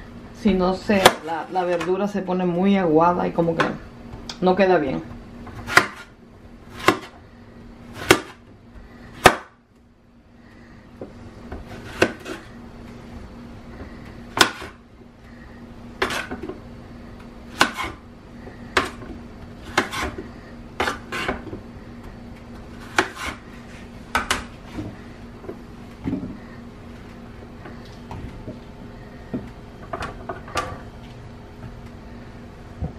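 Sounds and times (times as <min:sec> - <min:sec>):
knife chopping on cutting board: 0:05.5 - 0:06.1, 0:06.7 - 0:07.2, 0:08.0 - 0:08.4, 0:09.2 - 0:09.6, 0:11.5 - 0:12.4, 0:14.4 - 0:14.8, 0:16.0 - 0:16.5, 0:17.5 - 0:18.0, 0:18.8 - 0:20.2, 0:20.8 - 0:21.6, 0:22.8 - 0:23.4.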